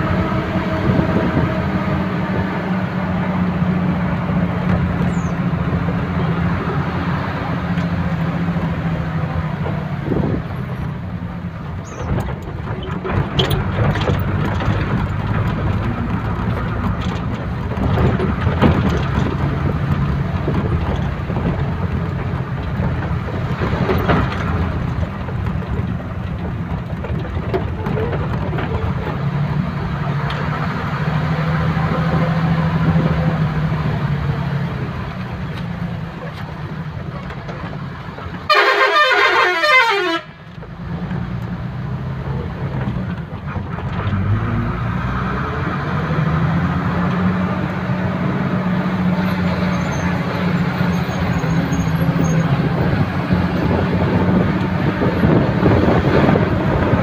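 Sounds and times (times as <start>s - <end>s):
vehicle engine and road rumble: 0.0s - 57.0s
horn blast falling in pitch: 38.5s - 40.3s.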